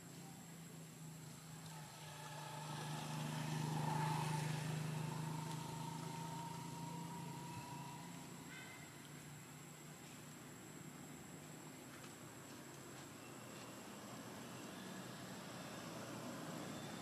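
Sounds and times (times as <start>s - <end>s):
vehicle engine passing by: 1.0s - 9.4s, 13.7s - 17.0s.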